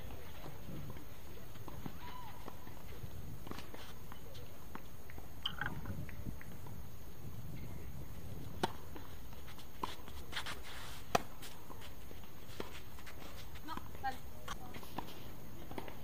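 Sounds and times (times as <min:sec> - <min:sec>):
background hiss: 0:00.0 - 0:16.0.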